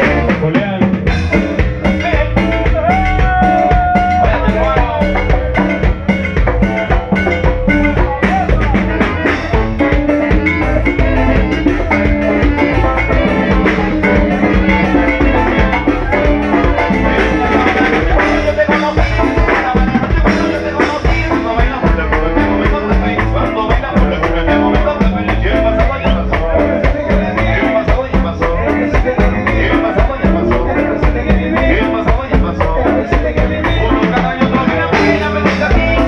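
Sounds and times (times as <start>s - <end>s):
drum kit beat: 0.0s - 36.0s
electric guitar: 0.0s - 36.0s
electric keyboard: 0.0s - 36.0s
live band playing dance music: 0.0s - 36.0s
saxophones: 1.4s - 28.5s.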